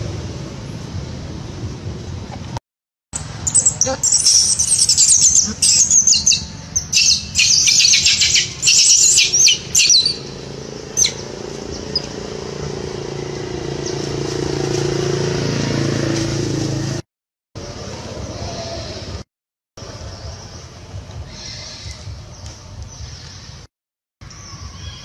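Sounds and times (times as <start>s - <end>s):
low engine hum: 3.2s - 17.0s
monkeys squealing: 3.4s - 10.4s.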